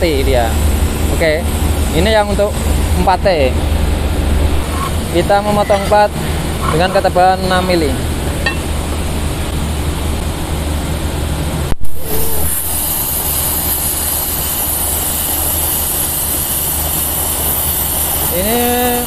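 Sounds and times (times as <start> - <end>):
steady hum: 0.0 - 19.0
high hiss of plasma cutter: 11.9 - 19.0.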